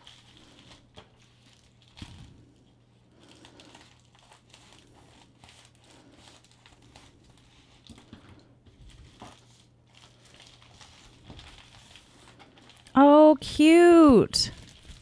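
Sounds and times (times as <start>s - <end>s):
plastic mailer crinkling: 8.8s - 12.9s, 14.5s - 15.0s.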